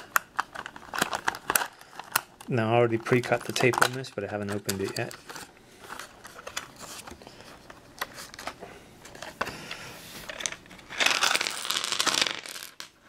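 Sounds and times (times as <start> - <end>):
plastic box clicking and crinkling: 0.0 - 9.3
dice clattering on tiled table: 10.3 - 13.0.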